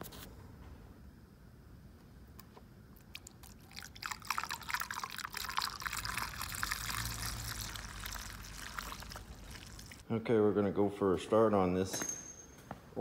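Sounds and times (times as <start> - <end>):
fuel trickling through funnel: 2.9 - 10.0
fuel dripping: 3.0 - 10.0.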